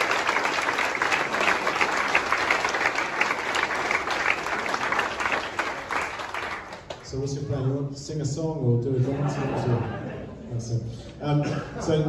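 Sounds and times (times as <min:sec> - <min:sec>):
crowd applauding: 0:00.0 - 0:07.3.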